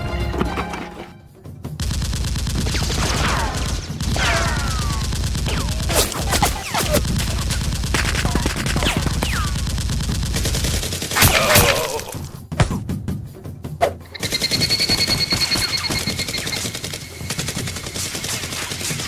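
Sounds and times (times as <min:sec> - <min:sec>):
rapid gunfire: 0:01.8 - 0:12.8, 0:14.1 - 0:19.0
bullets whizzing whistles: 0:13.8 - 0:19.0.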